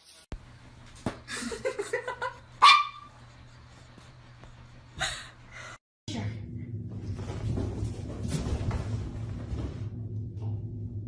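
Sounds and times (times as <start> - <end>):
dog barking sharply: 2.6 - 3.1
dog yelping: 2.6 - 3.1
small dog yipping: 2.6 - 3.1.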